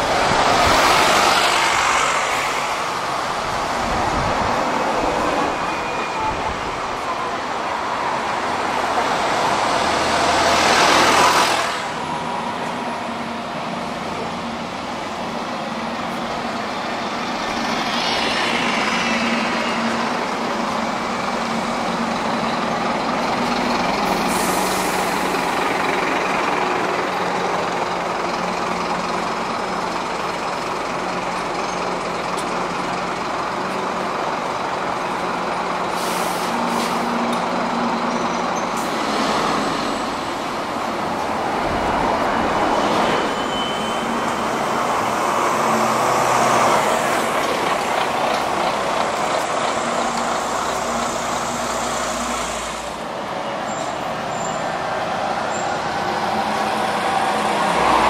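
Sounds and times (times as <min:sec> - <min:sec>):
bus engines humming: 0:00.0 - 0:58.0
air brake hiss: 0:24.1 - 0:25.3, 0:35.9 - 0:37.2.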